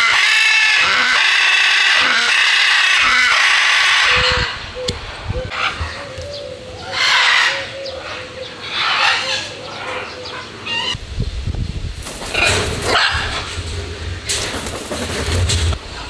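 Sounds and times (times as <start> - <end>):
macaws squawking: 0.0 - 11.0
low rumble: 11.0 - 16.0.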